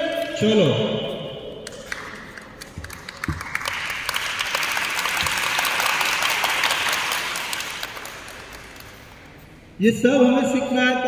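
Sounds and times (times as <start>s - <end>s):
people applauding: 1.6s - 9.3s.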